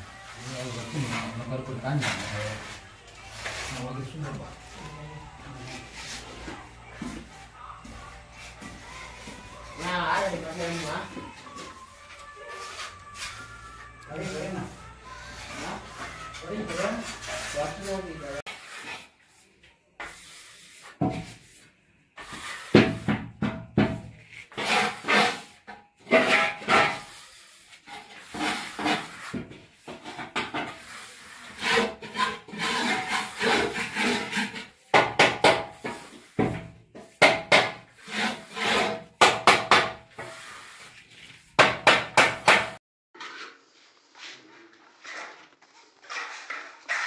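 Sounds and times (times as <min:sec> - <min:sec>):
hand tool scraping floor: 0:00.1 - 0:47.0.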